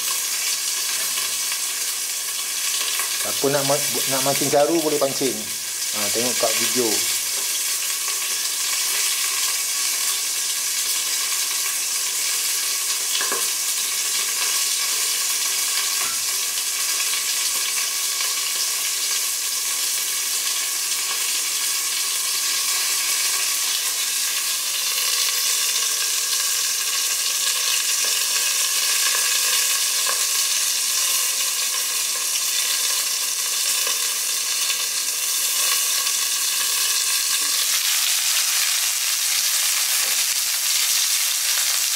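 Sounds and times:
fish sizzling in hot oil: 0.0 - 41.9.

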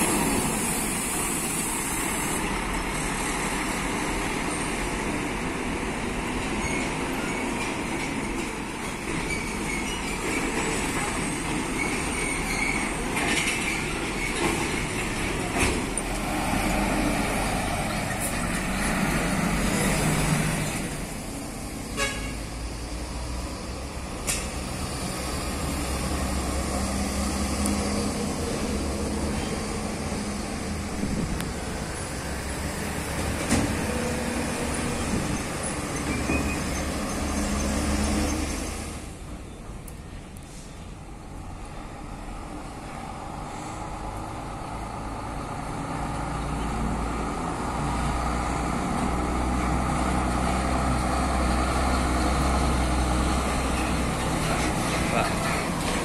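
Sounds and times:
heavy trucks driving past: 0.0 - 56.0
truck horn tooting: 21.9 - 22.5.

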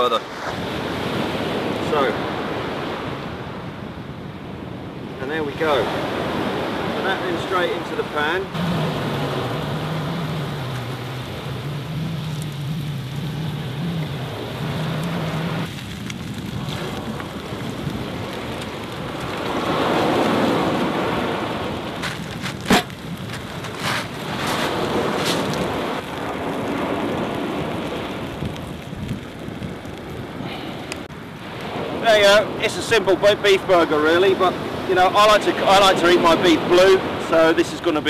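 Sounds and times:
low hum: 8.5 - 17.1.

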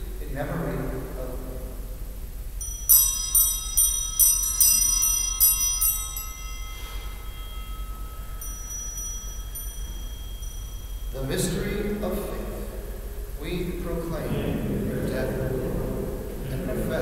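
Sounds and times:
altar bells ringing: 2.6 - 13.4.

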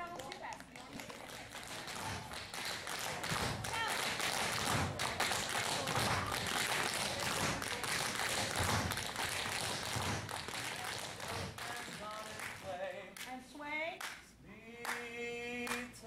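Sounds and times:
tap dancing shoes: 0.0 - 12.4
heavy foot stamps: 7.2 - 10.5.

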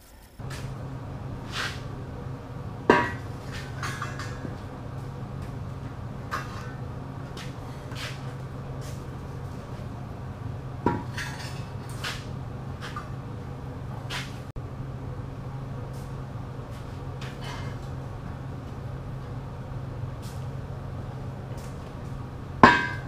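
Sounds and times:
steady low hum: 0.0 - 23.0
steel beams clanking and scraping: 1.4 - 2.0, 2.8 - 10.0, 10.8 - 13.2, 16.7 - 18.0.

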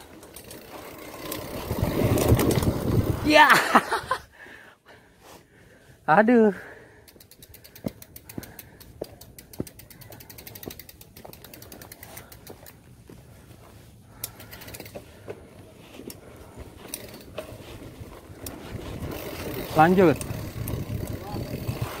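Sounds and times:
freewheel hub ticking: 7.0 - 12.8, 14.2 - 15.4, 16.0 - 22.0.

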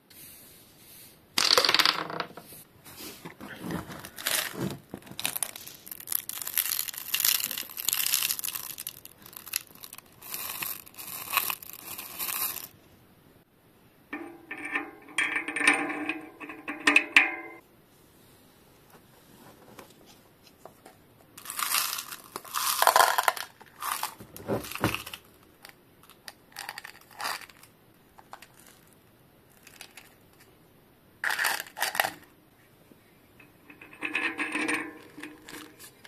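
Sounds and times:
scraping and rubbing metal parts: 3.0 - 12.7, 14.2 - 17.6, 21.4 - 25.3, 33.4 - 36.0.

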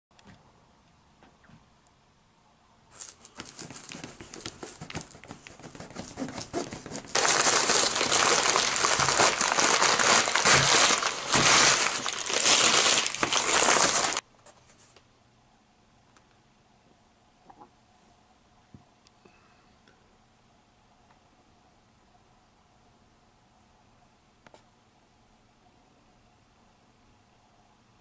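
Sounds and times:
packing paper crinkling: 2.9 - 14.2.

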